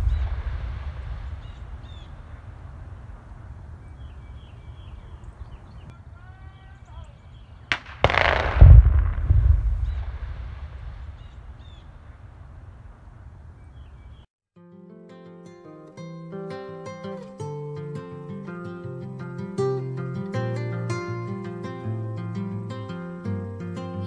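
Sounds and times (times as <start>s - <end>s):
distant explosion boom: 0.0s - 5.9s, 7.7s - 14.2s.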